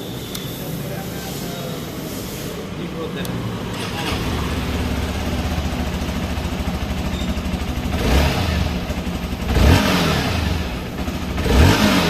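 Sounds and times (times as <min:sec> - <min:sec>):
engine throttle blips: 0:03.1 - 0:12.0
motorcycle engine idling: 0:03.1 - 0:12.0.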